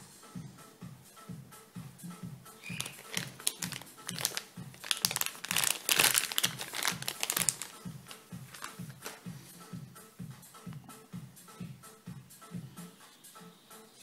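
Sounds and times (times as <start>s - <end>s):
background music with steady beat: 0.0s - 14.0s
plastic bag crinkling: 2.6s - 9.2s.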